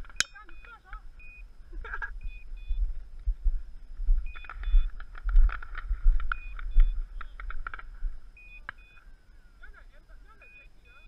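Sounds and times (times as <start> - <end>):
wind buffeting microphone: 0.0 - 9.2
short high beeps: 0.1 - 2.9, 8.4 - 9.0, 10.4 - 11.0.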